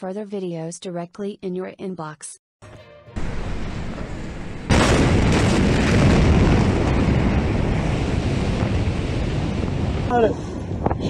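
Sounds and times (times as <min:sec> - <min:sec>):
explosion blast: 0:02.6 - 0:10.8
rumbling rushing noise: 0:03.2 - 0:10.8.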